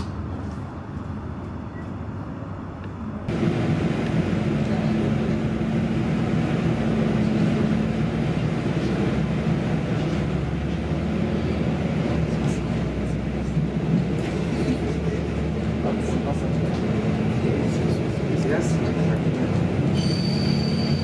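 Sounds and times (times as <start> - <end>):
train rumbling on rails: 0.0 - 21.0
train engine tone: 3.0 - 21.0.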